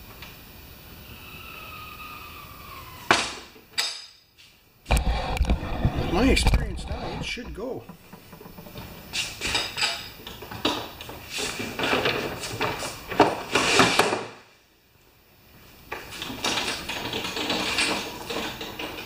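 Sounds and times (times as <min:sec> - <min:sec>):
caster wheels rattling on concrete: 0:04.9 - 0:13.9, 0:15.9 - 0:19.0
push mower clattering and scraping: 0:04.9 - 0:14.0, 0:16.1 - 0:19.0.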